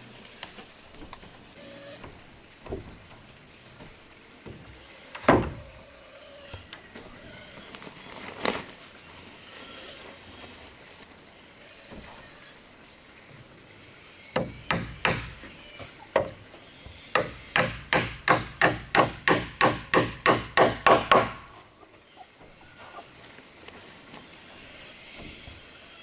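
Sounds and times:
hammer striking wooden post: 14.4s - 15.4s, 17.1s - 21.6s.

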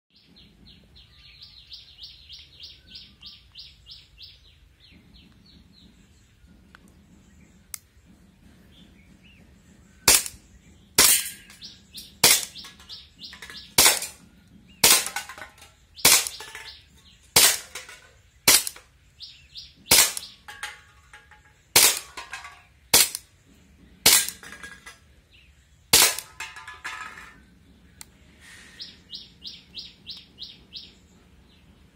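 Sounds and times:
birds chirping: 0.1s - 31.9s
airsoft pistol shots: 10.1s - 10.4s, 12.2s - 12.8s, 13.7s - 14.2s, 14.8s - 15.4s, 16.0s - 16.5s, 17.4s - 17.8s, 18.5s - 18.8s, 19.9s - 20.8s, 21.8s - 22.3s, 22.9s - 23.3s, 24.1s - 24.5s, 25.9s - 26.4s.

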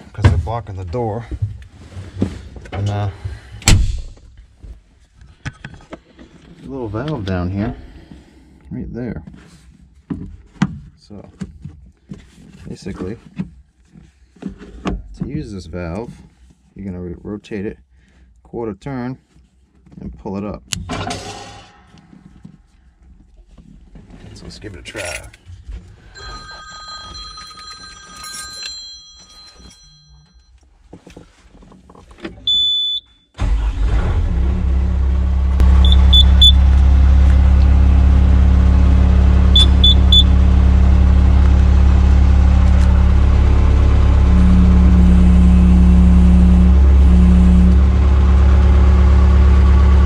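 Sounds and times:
diesel engine running: 33.4s - 50.0s
quick electronic beeps: 35.8s - 36.6s, 39.6s - 40.3s
faint electronic tones: 44.1s - 47.8s.

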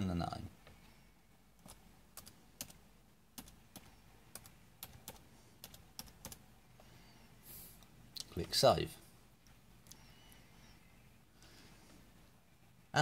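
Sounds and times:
keyboard typing clicks: 3.4s - 6.4s.

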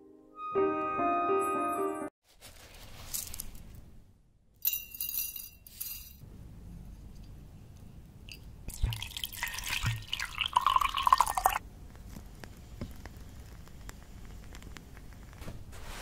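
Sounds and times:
water poured into a glass: 8.7s - 11.6s.

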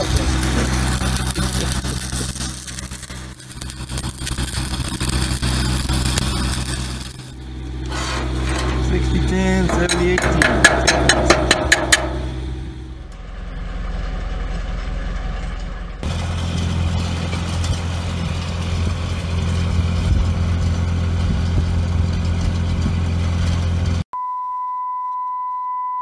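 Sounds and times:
low machine drone: 0.0s - 24.0s
test tone beep: 24.2s - 26.0s.

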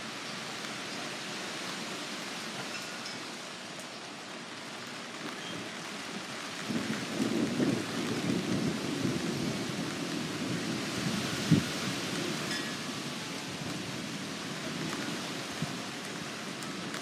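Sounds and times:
rain hissing: 0.0s - 17.0s
thunder rumbling: 6.6s - 17.0s.

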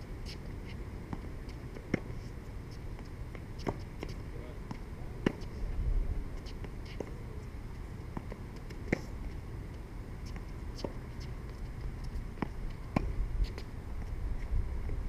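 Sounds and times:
tennis balls bouncing on court: 3.0s - 5.5s, 8.0s - 14.1s.

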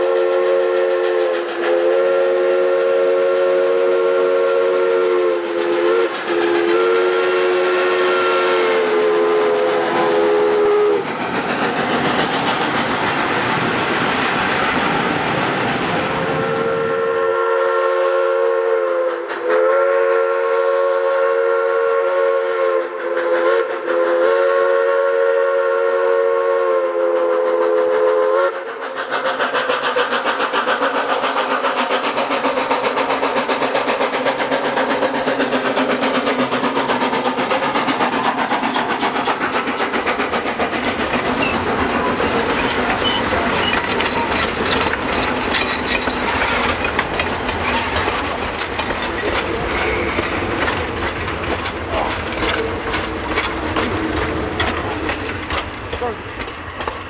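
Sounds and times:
steam locomotive chime whistle: 0.0s - 11.1s, 16.4s - 28.7s, 41.4s - 44.4s
passing train running beat: 0.0s - 57.0s.

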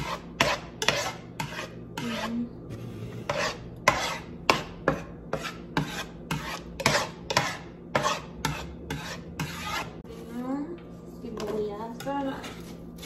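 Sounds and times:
spatula scraping frying pan: 0.0s - 10.1s.

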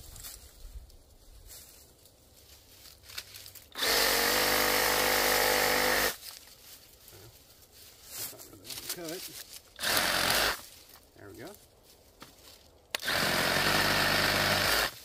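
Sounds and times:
rustling in brush: 0.0s - 3.7s, 6.2s - 9.8s, 10.6s - 12.8s.

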